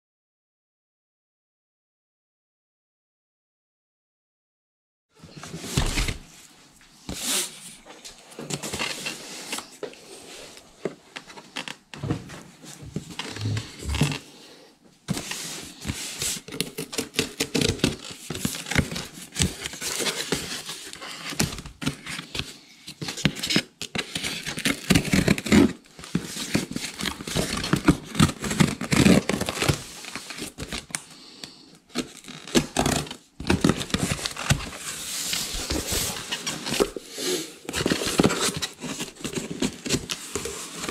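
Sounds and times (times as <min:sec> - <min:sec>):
cardboard tearing and crackling: 0:05.5 - 0:06.2, 0:15.1 - 0:22.4, 0:23.0 - 0:30.9, 0:32.0 - 0:40.9.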